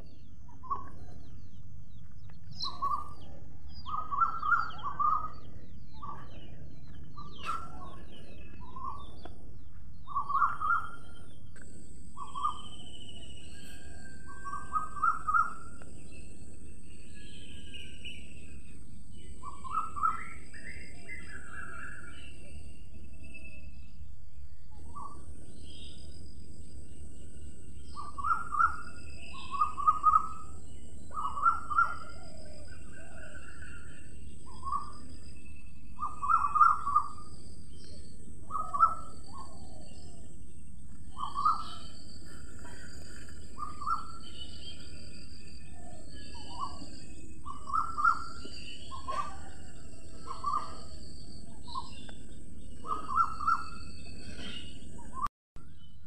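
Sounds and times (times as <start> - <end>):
other birds calling: 0.0 - 24.0, 24.7 - 55.3
sparrow chirping: 0.0 - 24.1, 26.8 - 55.3.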